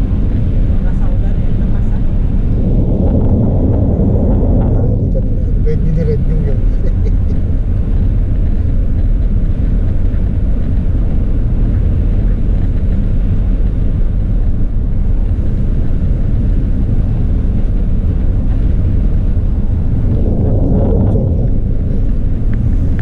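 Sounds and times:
car cabin road rumble: 0.0 - 23.0.

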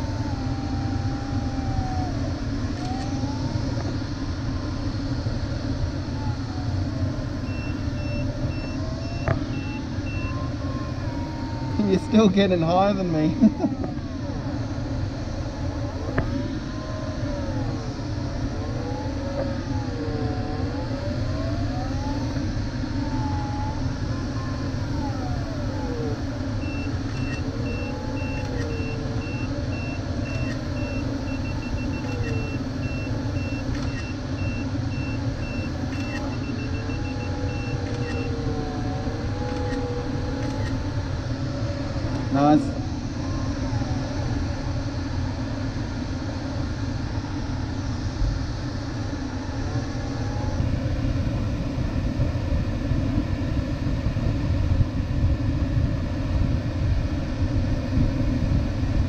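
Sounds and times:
variometer tone sliding in pitch: 6.2 - 14.2, 24.4 - 40.9
high electronic beeps: 7.5 - 10.4.

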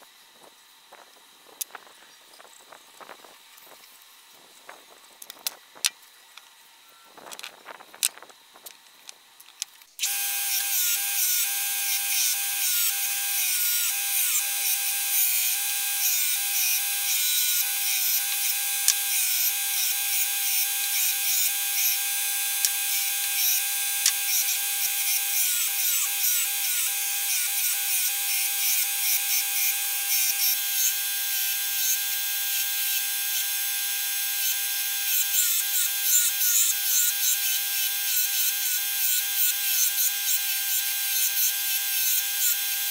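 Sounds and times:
belt grinder motor whine: 10.0 - 42.9.

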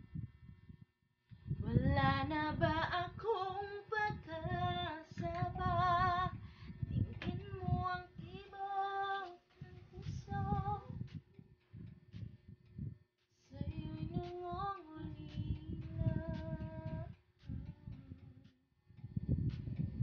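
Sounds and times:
woman singing with vibrato: 1.6 - 10.9, 13.5 - 18.2.

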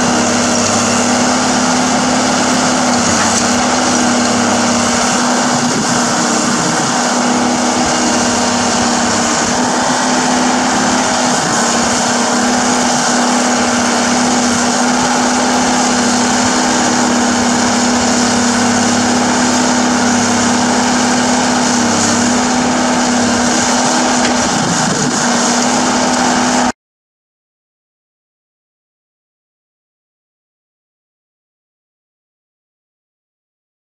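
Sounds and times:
excavator diesel engine running: 0.0 - 26.7.

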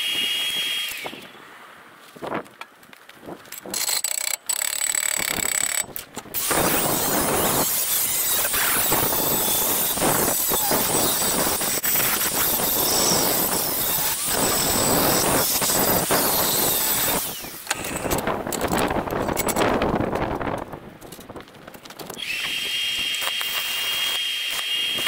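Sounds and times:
angle grinder squealing on metal: 6.4 - 18.2.

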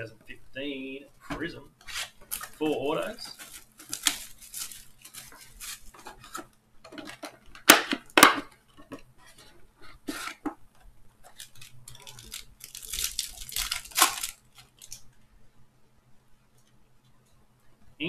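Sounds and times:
plastic shrink-wrap crinkling: 1.8 - 15.3
foil pack tearing open: 1.9 - 8.0, 11.3 - 15.1.

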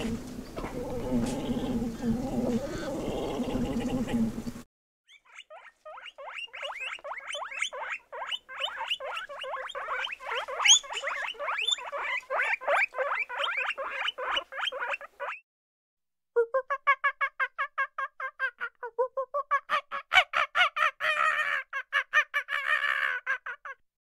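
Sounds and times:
guinea pig squeaking: 5.1 - 15.4.

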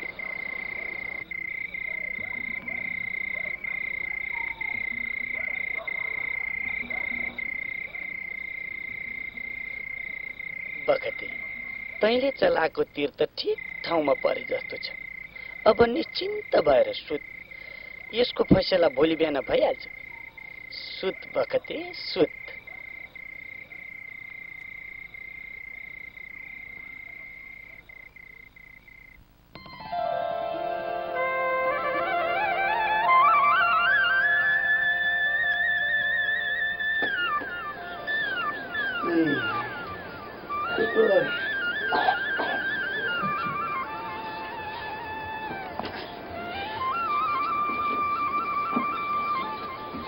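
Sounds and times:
faint croaking calls: 0.0 - 29.3, 31.7 - 50.0
high-pitched trill: 29.6 - 45.7.

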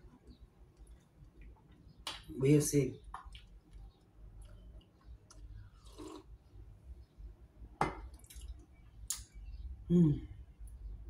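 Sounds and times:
person drinking from a cup: 5.7 - 6.3.

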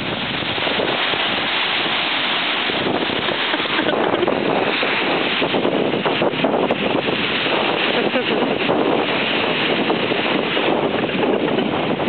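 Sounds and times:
small waves washing on shore: 0.0 - 12.0
wind buffeting microphone: 0.0 - 12.0.

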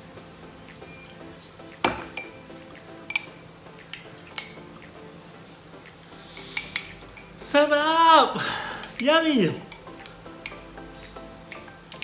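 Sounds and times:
spoon clinking container: 3.1 - 4.7, 6.4 - 7.3.

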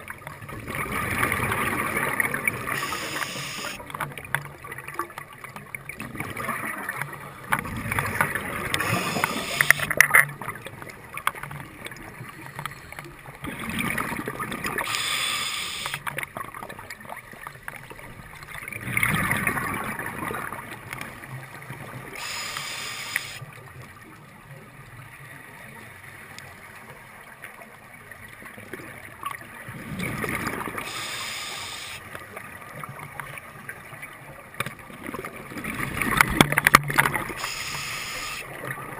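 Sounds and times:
regulator hissing inhalation: 2.7 - 3.8, 8.8 - 9.9, 14.9 - 16.0, 22.2 - 23.4, 30.8 - 32.0, 37.4 - 38.5.

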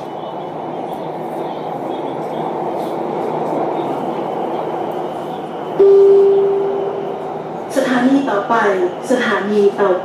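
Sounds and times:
metro train running: 0.0 - 10.0.

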